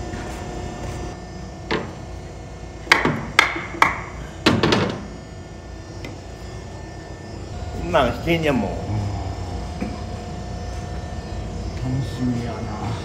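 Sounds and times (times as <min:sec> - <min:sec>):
sharp metallic knocks and clanks: 0:02.8 - 0:05.1.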